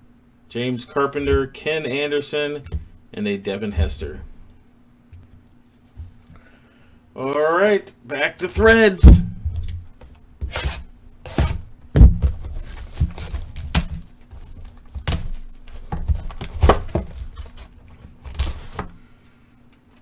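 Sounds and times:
handling noise: 0:08.4 - 0:18.9
cardboard box knocks and thuds: 0:10.5 - 0:14.1, 0:14.9 - 0:17.7.

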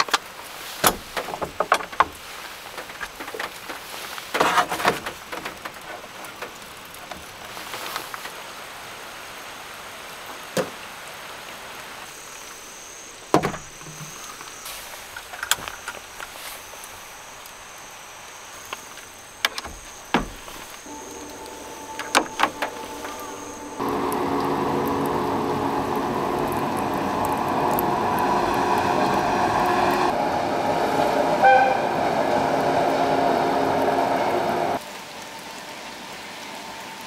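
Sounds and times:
camping gear clicking and knocking: 0:00.0 - 0:07.4
rain hiss: 0:00.0 - 0:37.0
thin high whine: 0:19.9 - 0:32.0.

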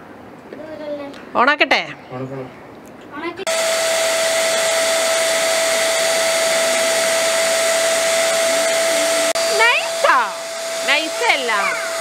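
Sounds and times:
electric air pump whining: 0:03.5 - 0:12.0.

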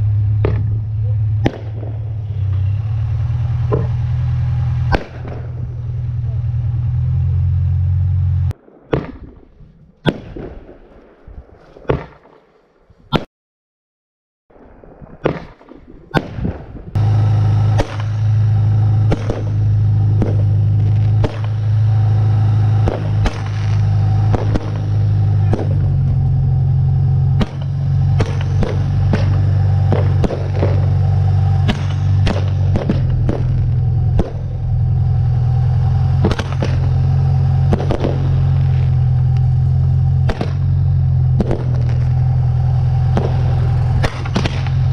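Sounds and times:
motor humming: 0:00.0 - 0:08.5, 0:17.0 - 0:44.9
firework bangs: 0:00.0 - 0:12.6, 0:14.6 - 0:44.9.

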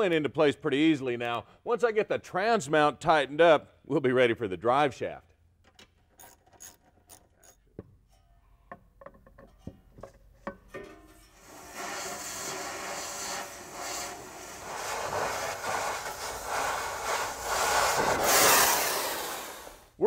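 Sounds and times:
hand tools clicking on metal: 0:05.6 - 0:07.8
cutting torch hissing: 0:11.4 - 0:20.0.

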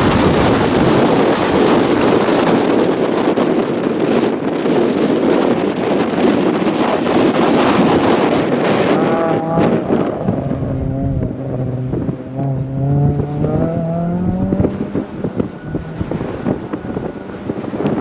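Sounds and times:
wind buffeting microphone: 0:00.0 - 0:18.0
rally car accelerating through gears: 0:08.4 - 0:18.0.

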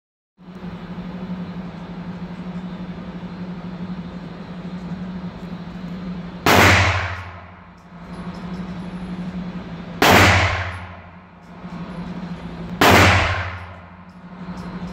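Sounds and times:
steady low hum: 0:00.4 - 0:14.9
handgun shot echoing: 0:06.5 - 0:07.3, 0:10.0 - 0:11.0, 0:12.8 - 0:13.7.

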